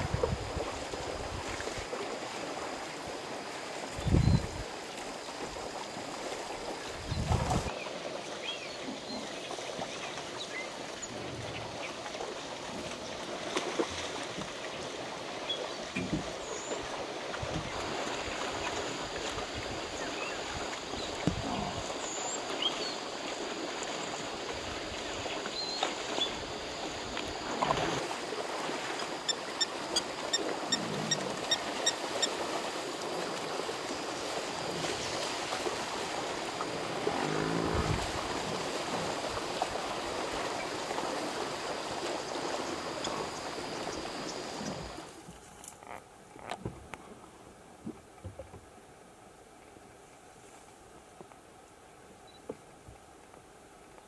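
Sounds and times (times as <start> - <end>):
water sloshing and splashing: 8.9 - 48.7.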